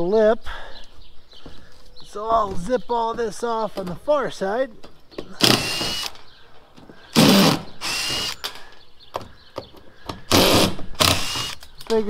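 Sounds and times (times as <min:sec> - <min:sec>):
cordless driver whining: 0:05.4 - 0:06.2, 0:07.1 - 0:08.6, 0:10.3 - 0:11.8.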